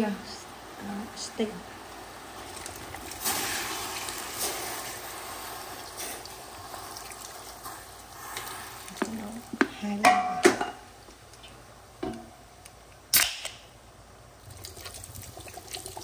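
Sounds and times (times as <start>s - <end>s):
liquid pouring into pot: 2.4s - 9.5s, 14.4s - 16.0s
knocks and clinks on steel pot: 10.0s - 10.8s.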